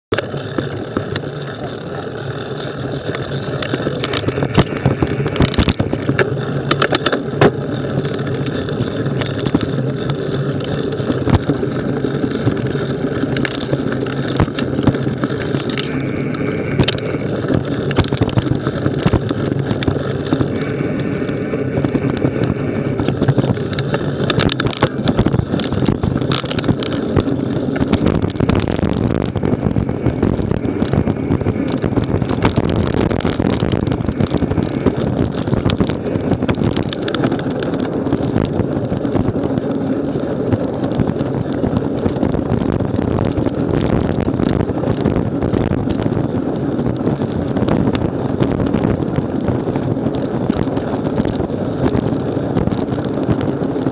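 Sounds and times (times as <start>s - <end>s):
bike tyre rumble on dirt: 0.0s - 53.9s
bike knocks and rattles: 0.1s - 53.9s.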